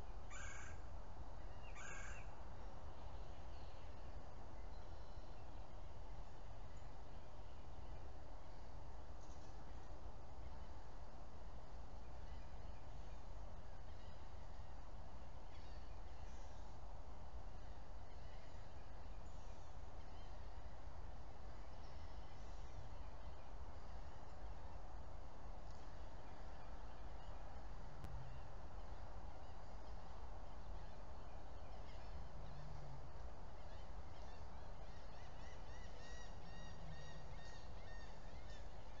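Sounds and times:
outdoor background noise: 0:00.0 - 0:39.0
birds calling: 0:01.6 - 0:02.3
short low bird calls: 0:28.1 - 0:39.0.

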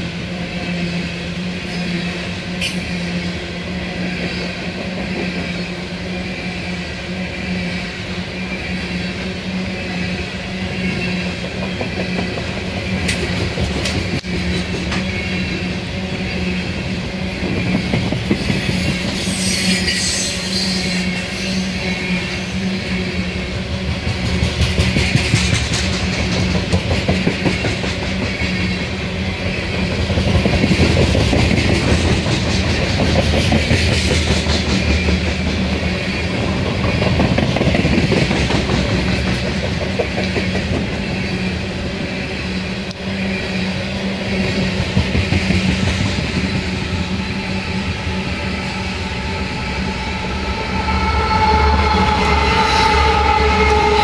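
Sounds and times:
train wheels rumbling on rail: 0:00.0 - 0:54.0
steady high-pitched tone: 0:47.0 - 0:54.0.

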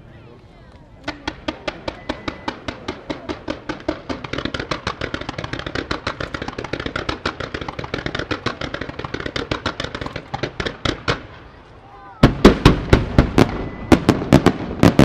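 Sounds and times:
fireworks popping rapidly: 0:01.0 - 0:11.5.

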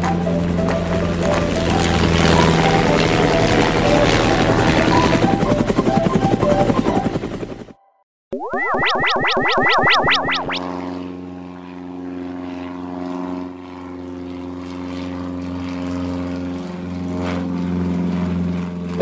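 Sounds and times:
cartoon propeller plane drone: 0:00.0 - 0:19.0.

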